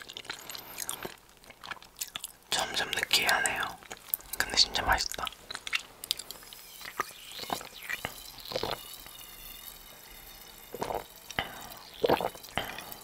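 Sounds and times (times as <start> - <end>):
person gulping water: 0.0 - 6.4, 7.4 - 8.8, 10.8 - 13.0
faint fizzy hiss: 0.0 - 13.0.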